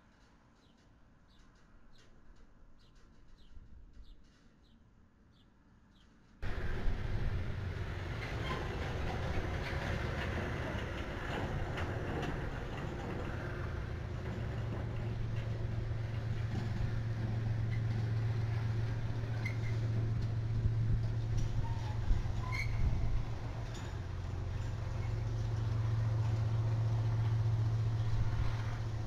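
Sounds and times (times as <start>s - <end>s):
diesel locomotive engines rumbling: 6.4s - 29.0s.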